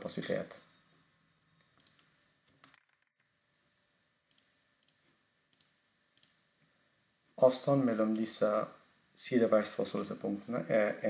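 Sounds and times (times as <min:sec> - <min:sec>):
faint computer mouse clicks: 0:04.3 - 0:06.4.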